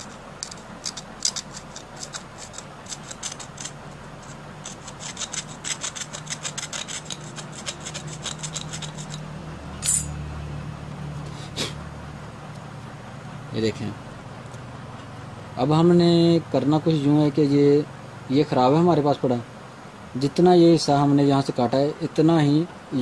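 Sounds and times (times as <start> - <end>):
metal blade scraping rubber: 0.0 - 10.1.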